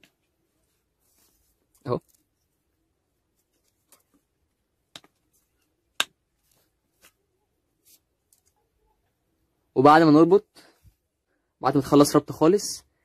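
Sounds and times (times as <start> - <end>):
cane sticks knocking together: 4.9 - 5.2, 5.9 - 6.2.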